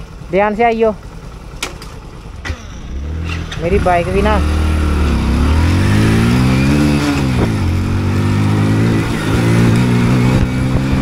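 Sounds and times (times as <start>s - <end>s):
motorcycle engine revving: 0.0s - 11.0s.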